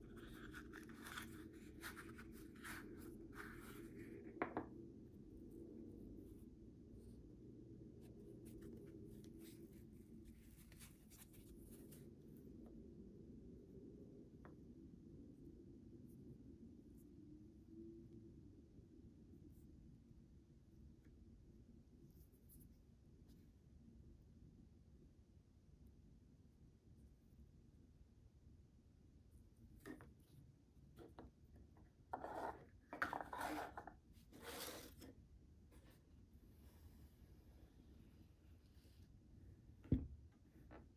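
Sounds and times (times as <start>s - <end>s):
low room hum: 0.0s - 40.9s
rubbing and scraping: 32.1s - 35.1s.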